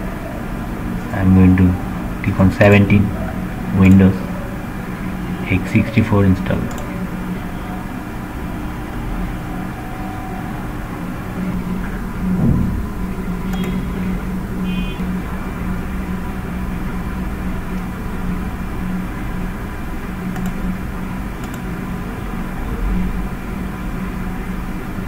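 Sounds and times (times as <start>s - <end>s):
low background hum: 0.0s - 25.0s
faint clicks: 6.7s - 6.9s, 13.5s - 13.8s, 20.3s - 20.6s.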